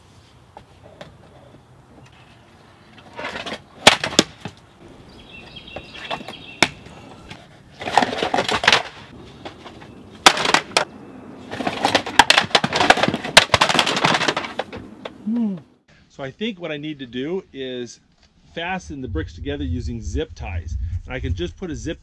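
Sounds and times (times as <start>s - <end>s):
bricks tumbling: 5.8s - 15.2s.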